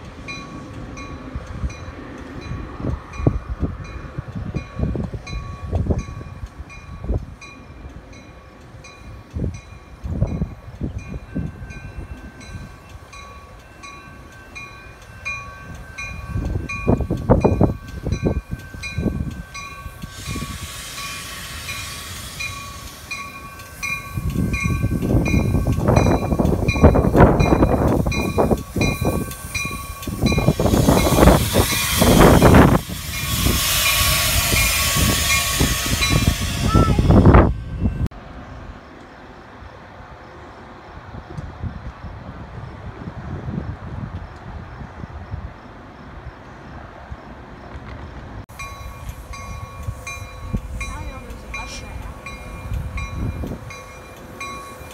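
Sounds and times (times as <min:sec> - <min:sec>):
rumble of wheels and brakes: 0:00.0 - 0:54.9
train passing: 0:00.0 - 0:54.9
hiss: 0:19.4 - 0:26.6, 0:27.8 - 0:37.4.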